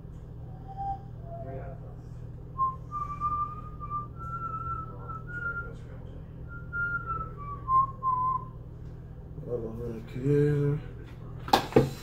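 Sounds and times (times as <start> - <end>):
man whistling a tune: 0.5 - 1.6, 2.6 - 8.6.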